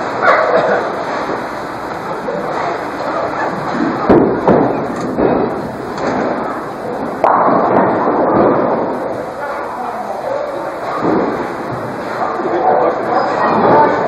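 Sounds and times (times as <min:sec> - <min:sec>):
bowling hall noise: 0:00.0 - 0:14.0
bowling pins clattering: 0:00.0 - 0:14.0
bowling balls landing thuds: 0:03.2 - 0:09.4, 0:10.8 - 0:12.5.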